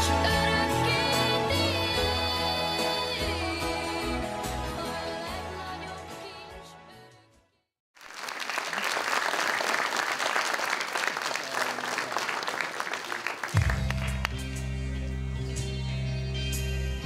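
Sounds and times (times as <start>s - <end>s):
music: 0.0s - 7.7s, 13.4s - 17.0s
audience applause: 8.0s - 14.5s
backing music with deep bass: 13.6s - 17.0s.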